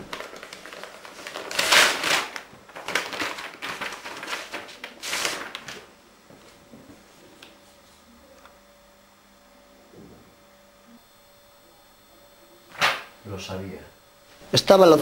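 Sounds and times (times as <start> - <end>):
paper envelope tearing: 0.0 - 5.9
paper rustling and crackling: 0.0 - 7.6.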